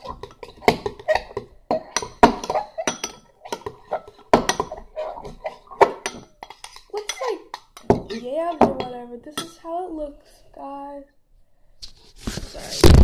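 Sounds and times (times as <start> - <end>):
metal spoon scraping ceramic bowl: 0.0 - 9.6.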